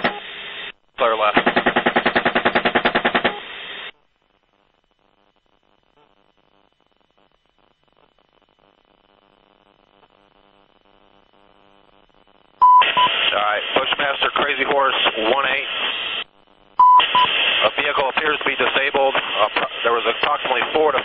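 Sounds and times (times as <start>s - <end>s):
radio hiss: 0.0s - 4.0s, 5.9s - 21.0s
faint hum: 0.0s - 21.0s
chain gun firing burst: 1.4s - 3.4s.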